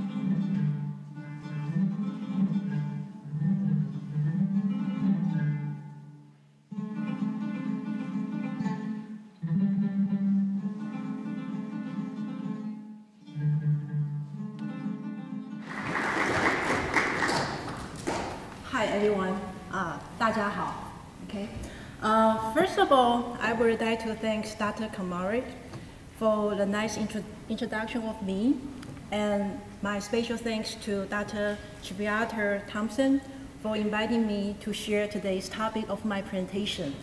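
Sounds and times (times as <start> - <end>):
plucked acoustic guitar music: 0.0 - 15.7.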